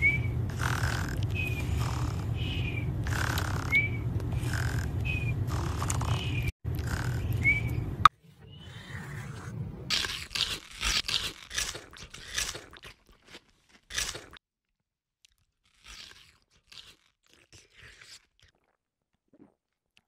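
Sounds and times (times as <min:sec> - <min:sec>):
cartoon snoring with whistle: 0:00.0 - 0:07.8
steady low hum: 0:00.0 - 0:08.1.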